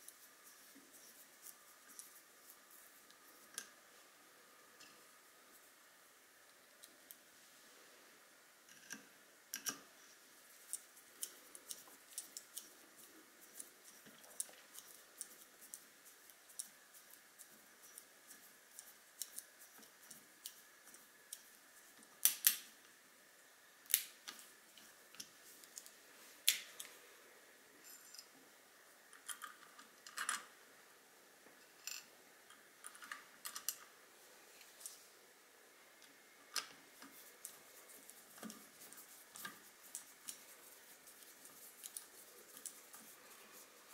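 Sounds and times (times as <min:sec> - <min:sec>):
small metallic clicks and taps: 0:08.7 - 0:09.9, 0:31.7 - 0:33.9.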